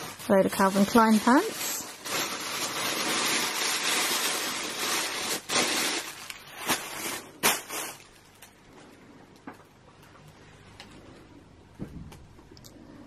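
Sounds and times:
plastic bag rustling: 0.0s - 8.7s.

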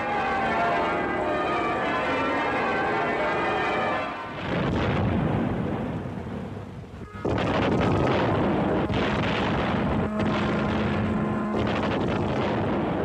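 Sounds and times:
field guns firing heavy booms: 4.3s - 6.5s, 7.2s - 13.0s.

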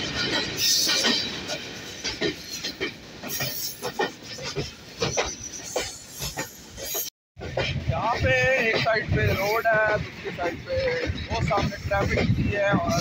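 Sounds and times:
train wheels clattering: 0.0s - 13.0s.

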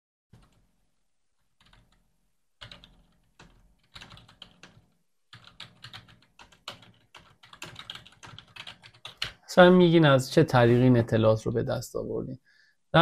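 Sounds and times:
typing on computer keyboard: 0.4s - 0.7s, 1.4s - 9.4s.

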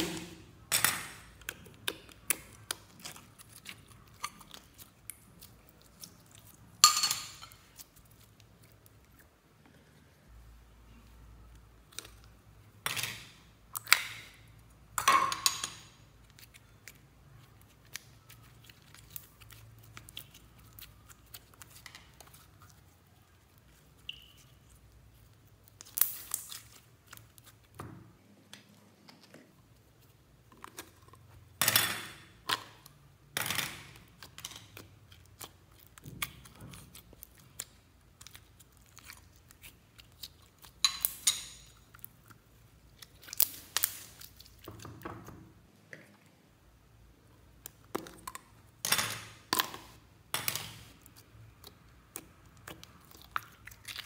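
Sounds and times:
slime squeezed crackling and popping: 16.1s - 27.8s, 33.7s - 44.7s, 50.9s - 54.0s.

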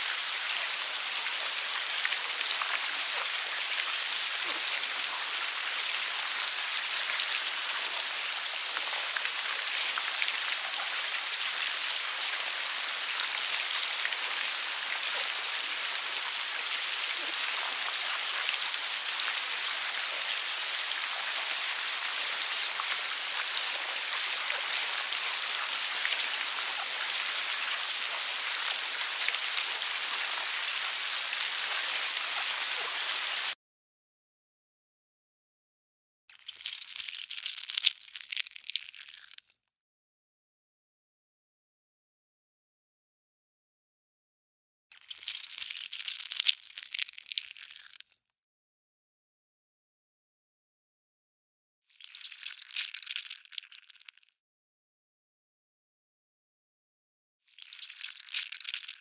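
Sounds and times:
maggots crackling in bran: 36.5s - 39.4s, 45.1s - 48.0s, 52.1s - 54.2s, 57.6s - 59.0s.

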